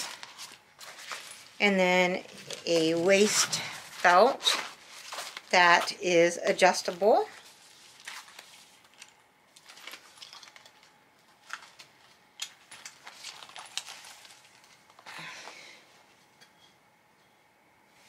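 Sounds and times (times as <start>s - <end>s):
fabric bag rustling: 0.0s - 6.0s.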